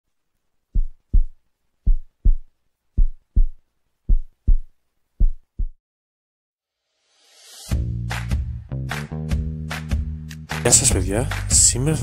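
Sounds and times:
heartbeat thumps: 0.7 - 5.8.

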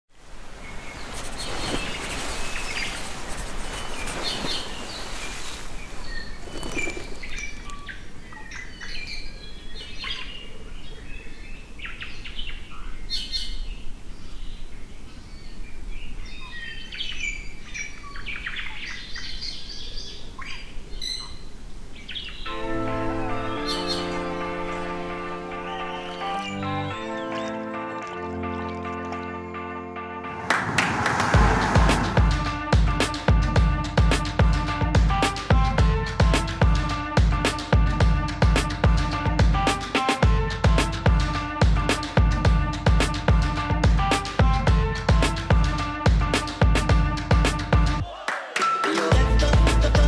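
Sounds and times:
birds chirping and calling: 0.8 - 14.5, 25.5 - 27.8
music: 22.5 - 50.0.

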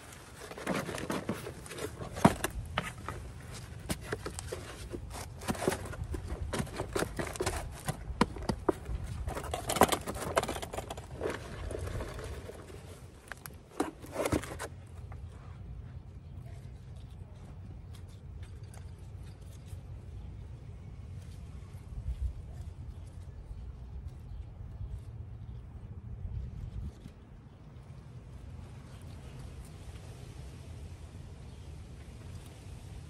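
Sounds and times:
soil rustling and crumbling: 0.0 - 25.6.

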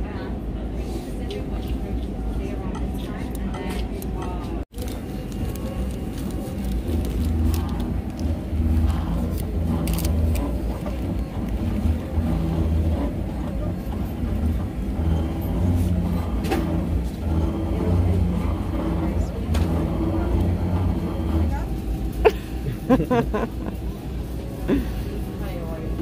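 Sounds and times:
engraving machine motor hum: 5.1 - 22.1.

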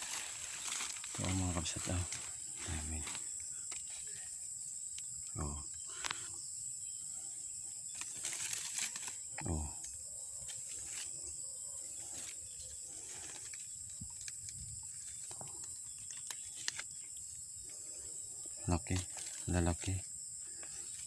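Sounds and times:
plastic bag and leaves rustling: 0.0 - 4.2, 7.9 - 9.3, 12.0 - 17.0, 18.6 - 20.0
insects chorus: 0.0 - 21.0.

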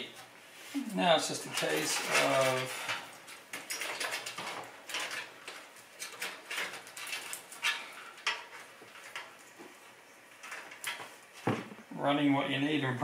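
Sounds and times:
cables clattering against metal case: 1.4 - 9.8, 10.4 - 11.8.

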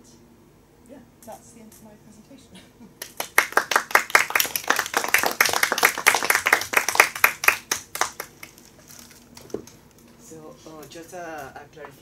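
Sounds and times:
audience clapping: 3.0 - 8.8.

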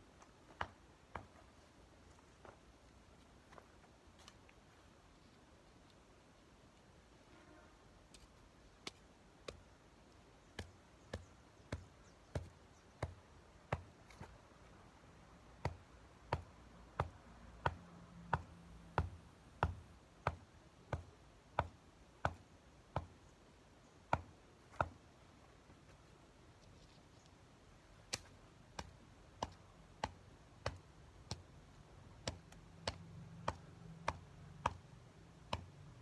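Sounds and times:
sharp knocks on soil: 0.4 - 1.5, 8.8 - 9.7, 10.5 - 14.4, 15.6 - 23.2, 24.1 - 25.0, 28.0 - 31.5, 32.1 - 35.8.

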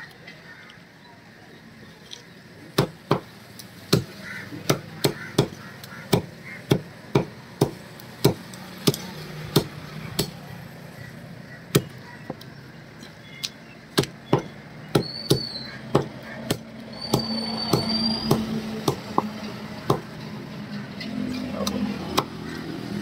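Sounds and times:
cleaver chopping on wooden block: 2.8 - 3.3, 3.9 - 10.4, 11.7 - 12.4, 13.9 - 20.1.

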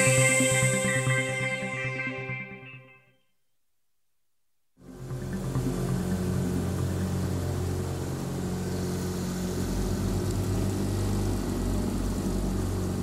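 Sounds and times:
outboard motor running: 4.9 - 13.0.

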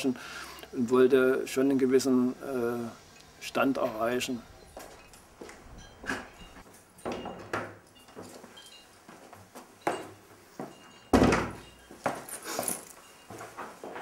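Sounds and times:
wooden door slamming shut: 11.1 - 11.6.

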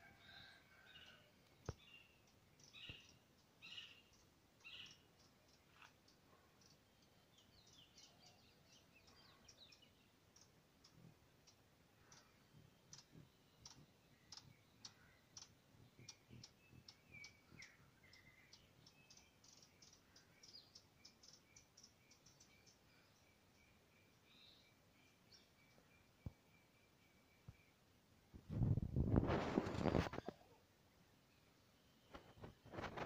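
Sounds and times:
faint high bird-like chirps: 0.0 - 27.8, 31.3 - 33.0
faint irregular clicking: 1.4 - 8.1, 8.7 - 22.8.

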